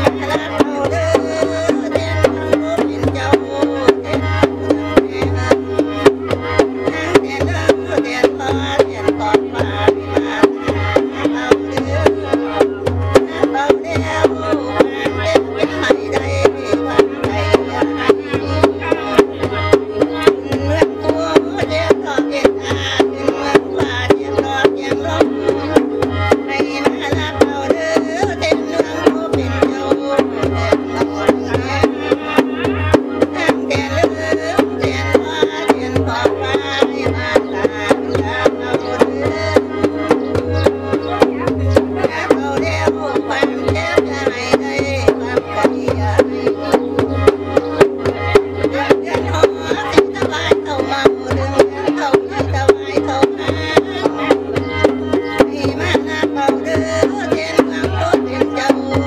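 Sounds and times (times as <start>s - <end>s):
hand drum beats: 0.0s - 59.0s.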